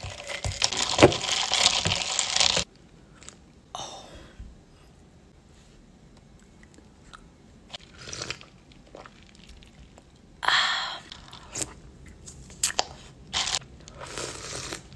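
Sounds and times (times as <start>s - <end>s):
crushed ice stirred in plastic cup: 0.0s - 2.7s
crunching and chewing ice: 0.0s - 3.4s.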